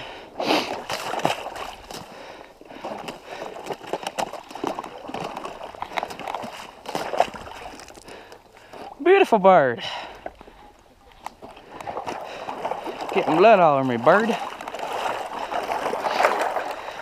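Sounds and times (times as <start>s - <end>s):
person wading through water: 0.0s - 17.0s.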